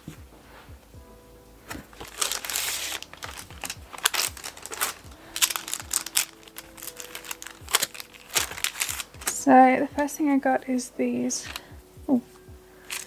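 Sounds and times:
paper and plastic crinkling: 1.7s - 9.5s.

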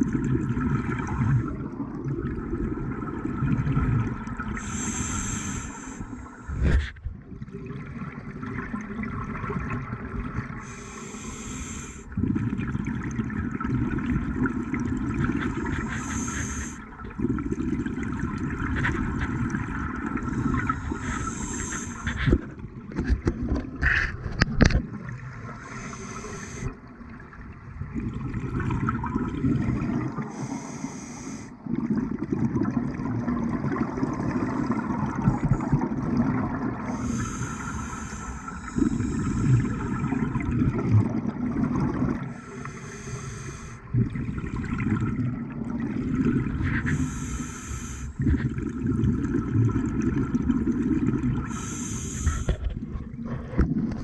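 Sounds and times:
exhaled bubbles rumbling: 0.0s - 30.6s, 31.5s - 54.0s
regulator inhale hiss: 4.6s - 6.8s, 10.6s - 12.1s, 15.6s - 16.8s, 20.3s - 22.3s, 25.6s - 26.8s, 30.3s - 31.6s, 36.9s - 39.9s, 42.3s - 43.9s, 46.7s - 48.2s, 51.5s - 52.7s.

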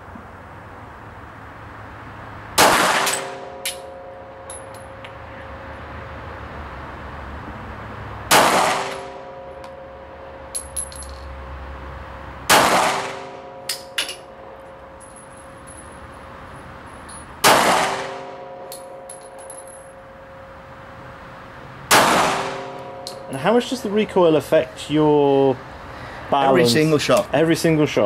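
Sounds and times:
pistol shots: 2.6s - 3.6s, 8.3s - 9.4s, 12.5s - 13.4s, 17.4s - 18.4s, 21.9s - 23.0s
small metallic clinks: 3.1s - 5.2s, 10.5s - 11.3s, 13.7s - 16.2s, 16.8s - 17.4s, 18.7s - 20.1s.

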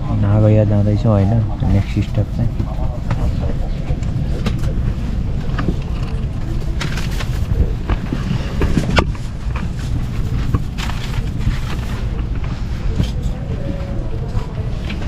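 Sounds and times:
train carriage rumble: 0.0s - 15.0s
clicks and knocks of bags: 4.3s - 15.0s.

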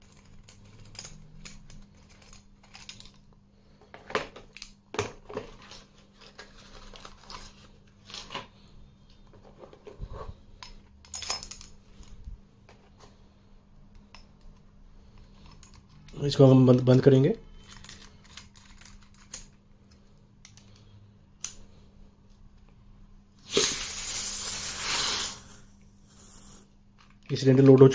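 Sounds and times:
small metal clicks and clinks: 15.2s - 16.2s, 17.6s - 20.8s.

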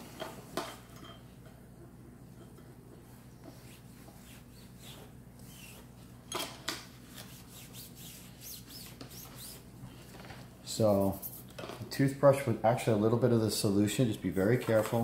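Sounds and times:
cloth rag rubbing metal tube: 3.4s - 6.0s, 7.1s - 9.8s, 10.7s - 11.5s.

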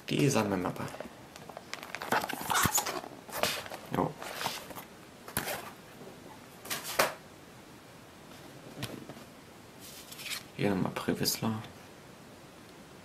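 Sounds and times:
plastic packaging crinkling: 0.8s - 5.7s.

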